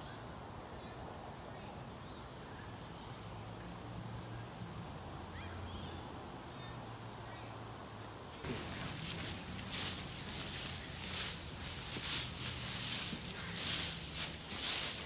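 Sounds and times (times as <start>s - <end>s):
birds chirping: 8.3s - 15.0s.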